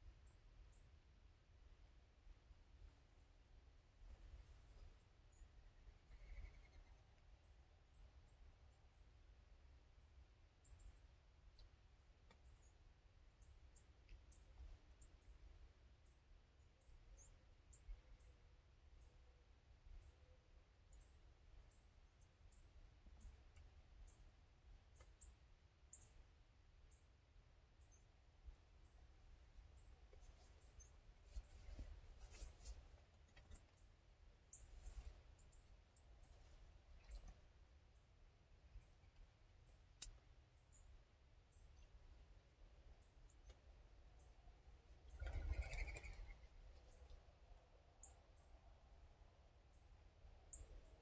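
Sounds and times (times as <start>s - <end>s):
small birds chirping: 2.7s - 48.8s, 49.5s - 51.0s
faint high-pitched chirps: 4.1s - 9.1s, 43.0s - 47.2s
soft rustles: 30.1s - 33.8s, 34.6s - 35.4s.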